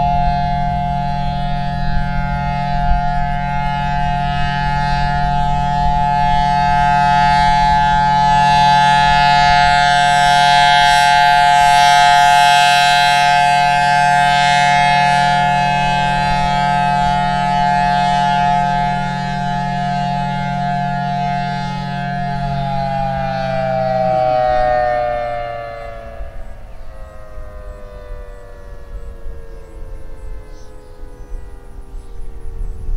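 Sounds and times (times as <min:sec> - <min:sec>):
siren blower drone: 0:00.0 - 0:32.9
two-tone siren wailing: 0:00.0 - 0:32.9.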